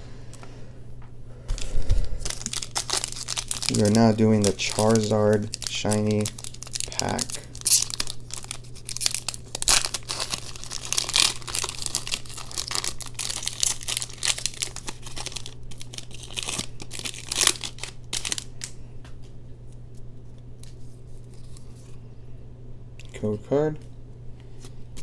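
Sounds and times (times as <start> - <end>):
foil wrapper tearing and crinkling: 2.2 - 18.8.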